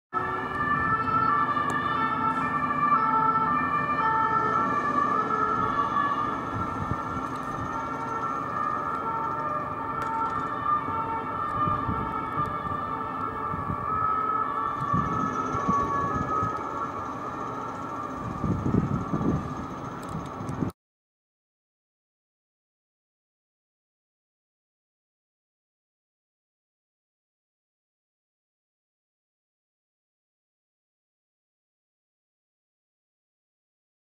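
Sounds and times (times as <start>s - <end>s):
two-tone police sirens: 0.1s - 20.8s.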